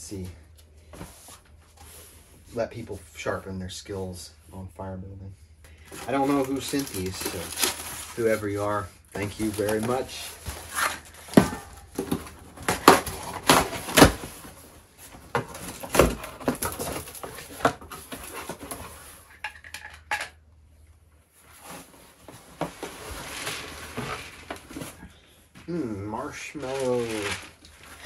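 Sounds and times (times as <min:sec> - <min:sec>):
packing rustling: 0:05.8 - 0:19.3, 0:21.4 - 0:25.2, 0:26.2 - 0:28.0
cardboard boxes knocking and thumping: 0:09.6 - 0:19.0.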